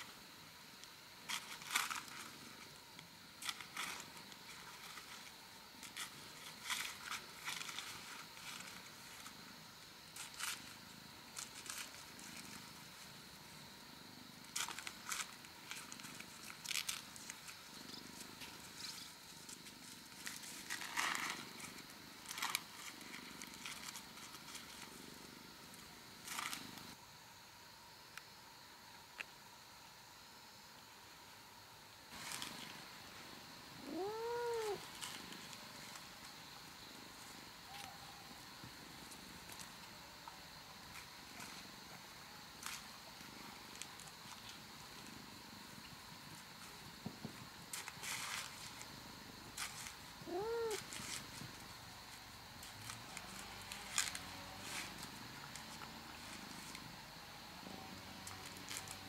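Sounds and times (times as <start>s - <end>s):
cat purring: 33.8s - 34.8s.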